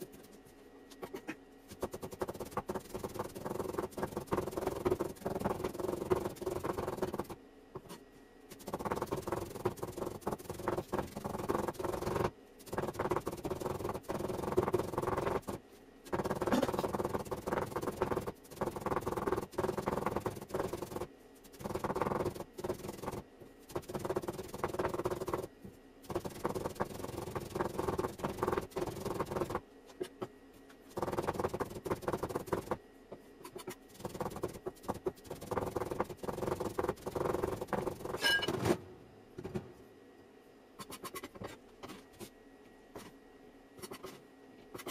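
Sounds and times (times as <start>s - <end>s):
hands rubbing dough: 0.0s - 25.5s, 30.9s - 32.8s, 33.4s - 38.2s.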